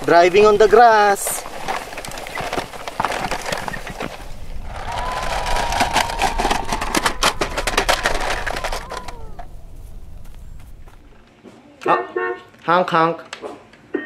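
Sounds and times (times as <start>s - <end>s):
toy wheels crackling on grass: 0.0s - 11.2s
steady high whine: 4.3s - 11.3s.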